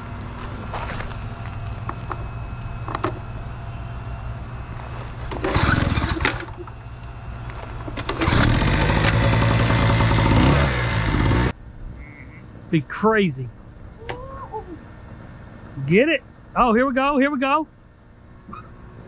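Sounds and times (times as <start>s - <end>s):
generator running loudly: 0.0s - 11.6s
generator pull-start burst: 5.3s - 6.7s, 7.8s - 10.4s.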